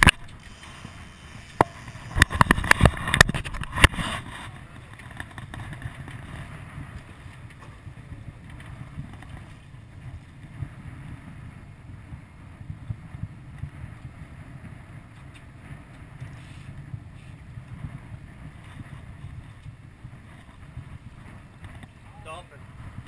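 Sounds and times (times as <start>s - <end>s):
wind buffeting microphone: 0.0s - 23.0s.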